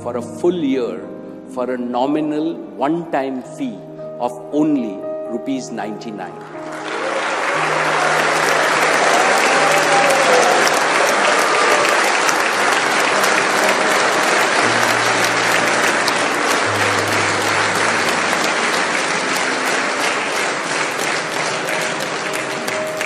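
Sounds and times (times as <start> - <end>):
background music tones: 0.0 - 23.0
large audience applauding: 6.4 - 23.0.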